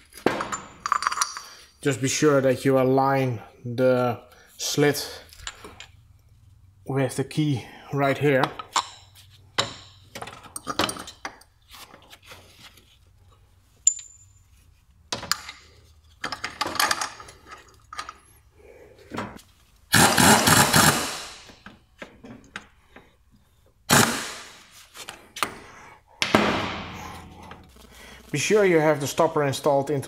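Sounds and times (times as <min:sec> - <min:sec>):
metal tools clinking: 0:00.0 - 0:01.8, 0:05.2 - 0:06.0, 0:13.8 - 0:14.6.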